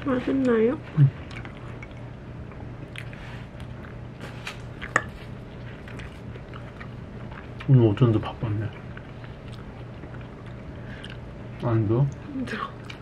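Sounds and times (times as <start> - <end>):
steady low hum: 0.0 - 13.0
chewing: 0.9 - 7.8, 8.6 - 11.3, 12.1 - 13.0.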